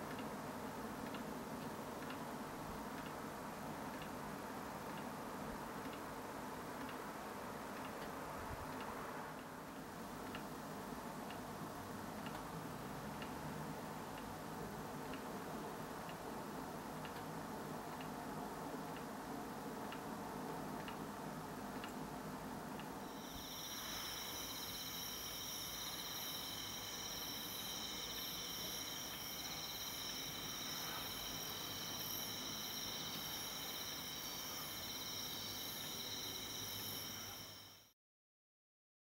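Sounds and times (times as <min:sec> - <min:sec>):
crickets trilling: 0:23.1 - 0:37.9.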